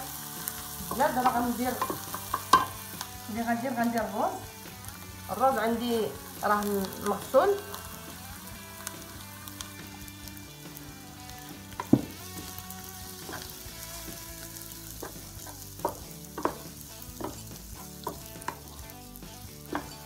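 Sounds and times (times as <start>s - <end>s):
rice sizzling in a frying pan: 0.0s - 20.0s
spatula scraping and tapping pan: 0.6s - 3.1s, 11.7s - 13.8s, 15.0s - 20.0s.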